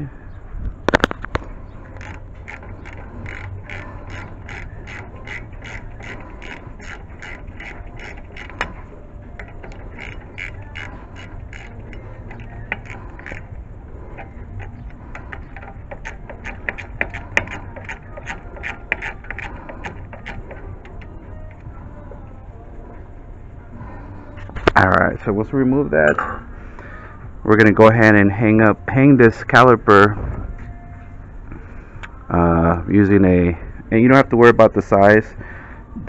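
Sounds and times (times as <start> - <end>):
socket ratchet clicking: 1.9 - 21.6.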